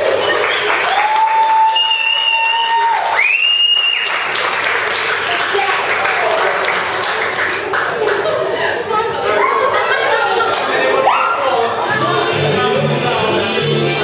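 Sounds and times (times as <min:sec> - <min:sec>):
crowd cheering and clapping: 0:00.0 - 0:08.4.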